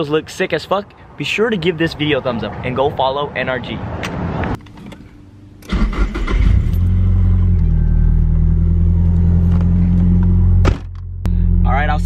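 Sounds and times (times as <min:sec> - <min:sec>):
car engine cranking: 0:04.0 - 0:11.1.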